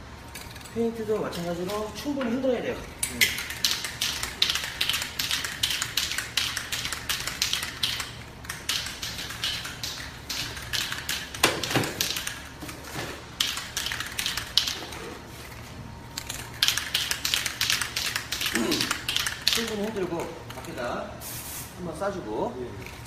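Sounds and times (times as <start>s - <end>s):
spray can ball rattling: 3.1s - 12.5s, 13.4s - 21.7s.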